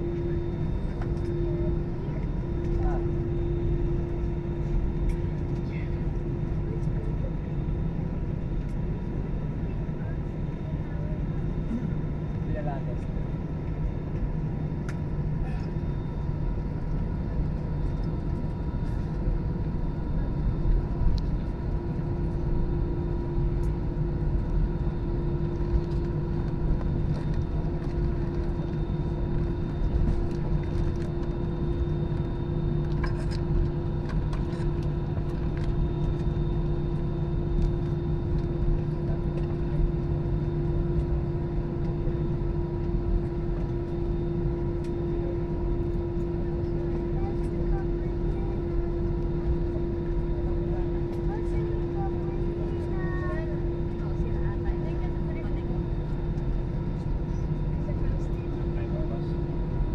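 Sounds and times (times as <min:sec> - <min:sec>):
steady cabin hums: 0:00.0 - 0:07.7
jet engines idling rumble: 0:00.0 - 0:59.9.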